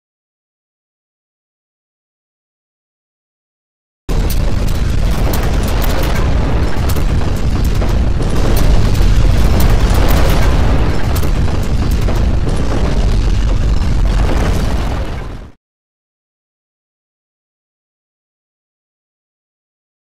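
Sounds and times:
objects clattering and banging: 0:04.1 - 0:15.5
earthquake deep rumble: 0:04.1 - 0:15.6.

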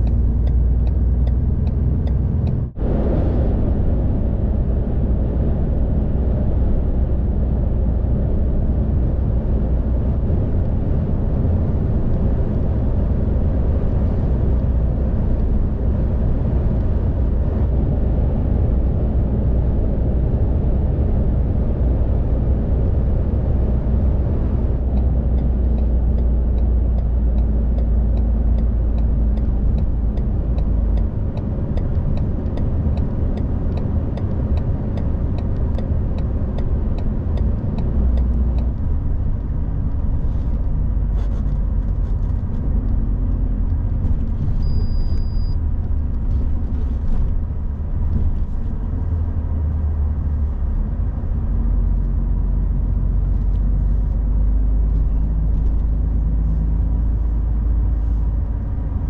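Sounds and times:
light ticking: 0:00.0 - 0:02.6, 0:24.9 - 0:40.0
truck engine and road rumble: 0:00.0 - 0:59.0
short high beep: 0:44.6 - 0:45.6.

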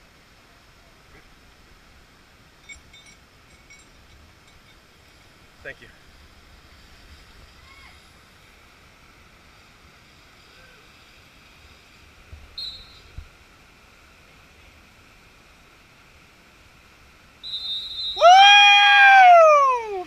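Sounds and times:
faint forest background: 0:00.0 - 0:20.0
person screaming: 0:18.2 - 0:20.0.

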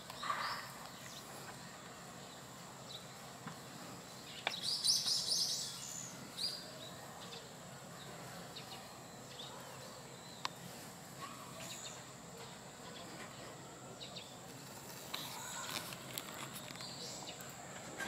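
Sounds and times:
background hiss: 0:00.0 - 0:18.0
small birds chirping: 0:00.0 - 0:18.0.

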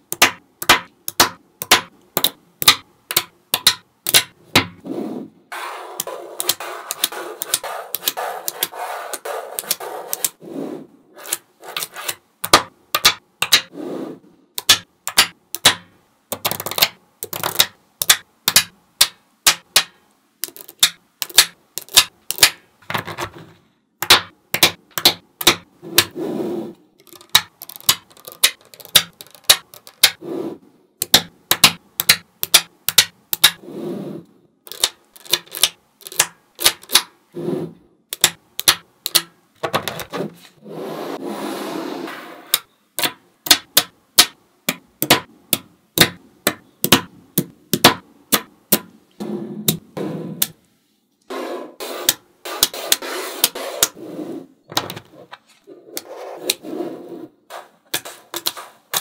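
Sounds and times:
magnetic balls clicking together: 0:00.0 - 0:04.8, 0:06.0 - 0:10.4, 0:11.3 - 0:13.7, 0:14.6 - 0:22.6, 0:27.0 - 0:30.2, 0:31.0 - 0:33.6, 0:34.6 - 0:37.2, 0:38.1 - 0:39.4, 0:42.5 - 0:48.9.

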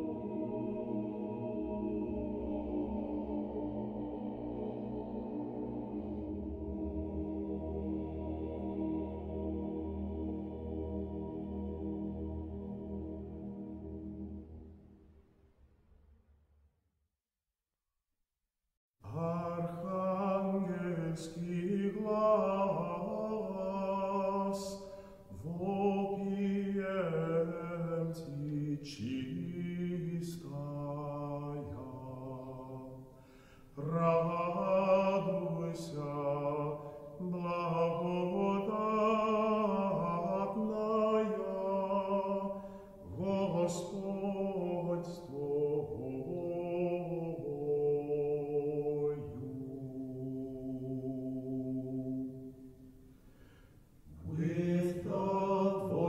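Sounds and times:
voices chanting: 0:00.0 - 0:14.8.

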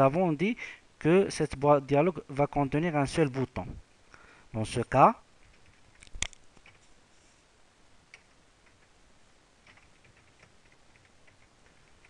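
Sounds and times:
keyboard typing clicks: 0:09.6 - 0:12.0.

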